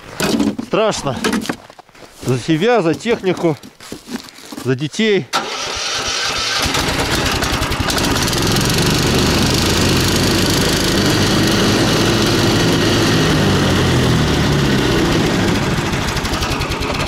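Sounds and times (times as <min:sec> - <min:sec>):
engine running steadily: 0:06.6 - 0:17.0.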